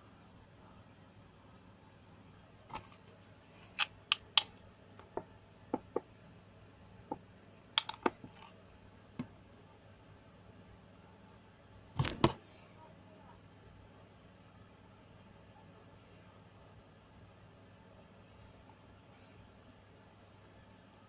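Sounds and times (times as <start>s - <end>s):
plastic container clicks: 7.8s - 8.2s.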